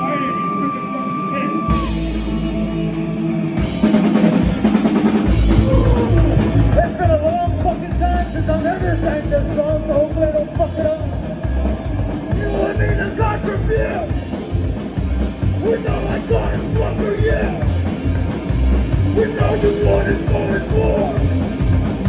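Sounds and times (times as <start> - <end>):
electric guitar: 0.0 - 22.0
drum kit: 1.7 - 22.0
upright bass: 1.7 - 22.0
person singing: 12.3 - 14.3, 15.6 - 17.7, 19.1 - 21.5.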